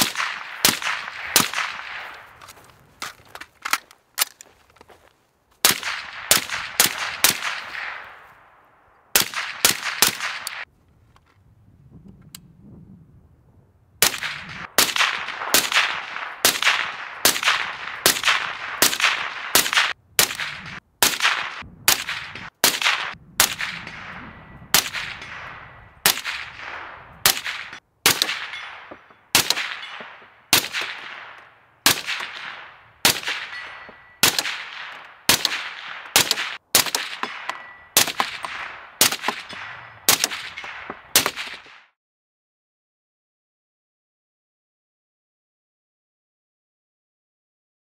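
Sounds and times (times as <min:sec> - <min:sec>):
suppressed rifle shots: 0:00.0 - 0:02.5, 0:05.6 - 0:08.3, 0:09.1 - 0:10.6, 0:14.0 - 0:41.8.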